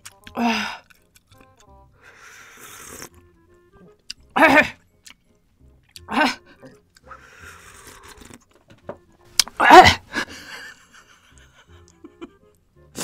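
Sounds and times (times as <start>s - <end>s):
slurping broth: 2.2s - 3.2s, 7.0s - 8.6s
woman groaning: 6.1s - 6.8s, 9.6s - 10.0s.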